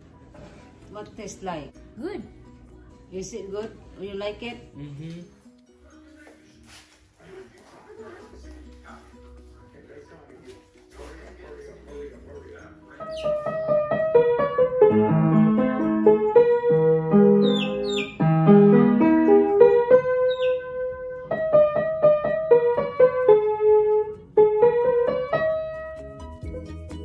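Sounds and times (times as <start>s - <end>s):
upright piano melody: 11.1s - 27.0s.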